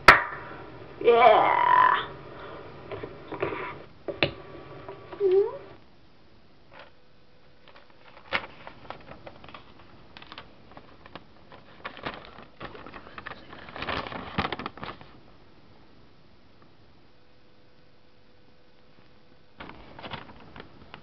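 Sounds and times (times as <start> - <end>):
paper rustling: 7.7 - 15.2, 19.6 - 21.0.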